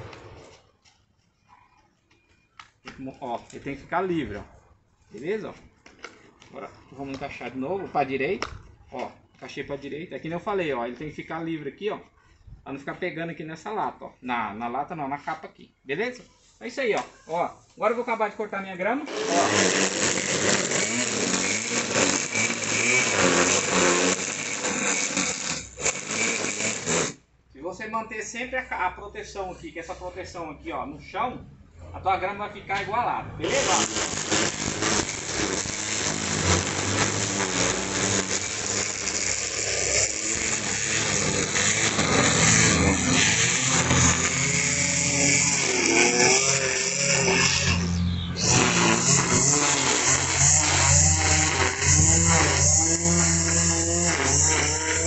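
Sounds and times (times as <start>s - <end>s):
electric string trimmer cutting grass: 19.1s - 27.2s, 33.4s - 55.0s.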